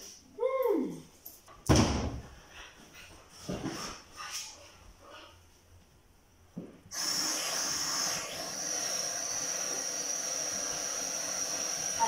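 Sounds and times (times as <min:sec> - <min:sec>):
perfume spray hissing: 0:06.9 - 0:12.0.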